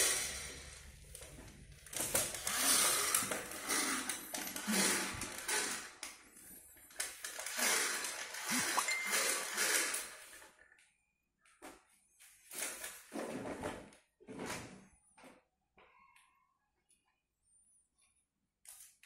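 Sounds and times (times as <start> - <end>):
plastic toys clattering: 0.0 - 10.5.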